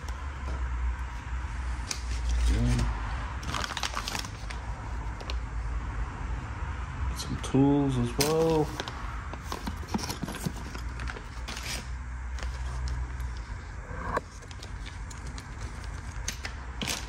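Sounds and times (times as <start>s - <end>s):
low steady hum: 0.0s - 17.0s
plastic bag rustling: 3.4s - 4.6s.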